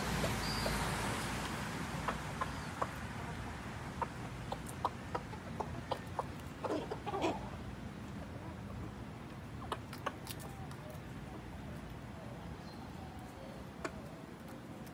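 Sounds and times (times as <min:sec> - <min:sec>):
chicken clucking: 0:02.0 - 0:11.8, 0:13.6 - 0:14.9.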